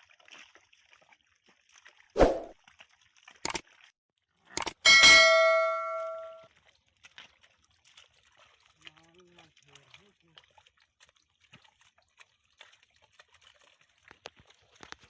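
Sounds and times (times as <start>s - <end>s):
bright bell ding: 4.8s - 6.4s.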